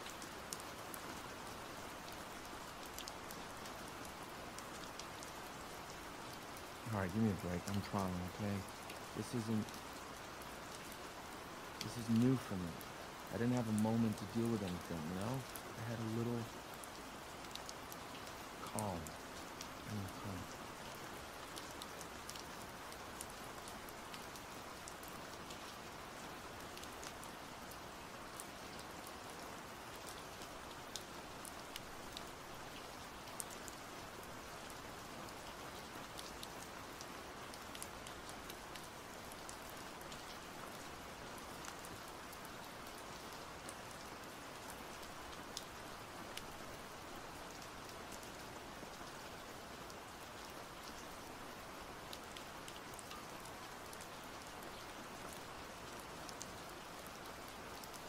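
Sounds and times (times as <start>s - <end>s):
steady rain falling: 0.0s - 58.0s
brief low voice: 19.9s - 20.4s.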